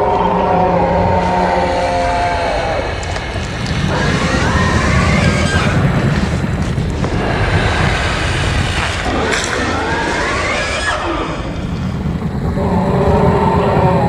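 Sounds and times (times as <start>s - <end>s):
deep rumbling monster growl: 0.0s - 14.0s
wavering screeching cries: 3.9s - 5.8s.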